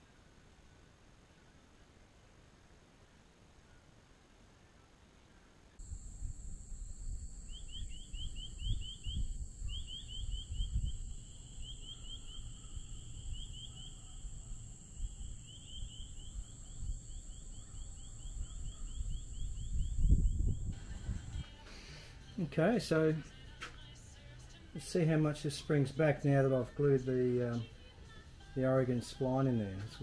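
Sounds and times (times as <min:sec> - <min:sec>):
thin high whine: 0:05.8 - 0:23.3
small animal chirping: 0:07.5 - 0:20.2.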